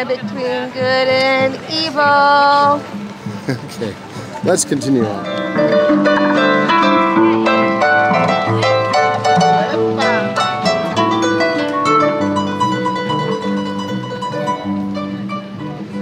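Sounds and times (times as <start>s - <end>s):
harp melody: 4.4s - 16.0s.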